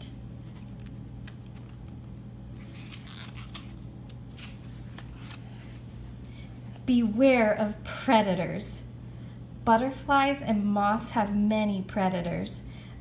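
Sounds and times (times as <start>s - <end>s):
book page turning: 0.4s - 6.9s.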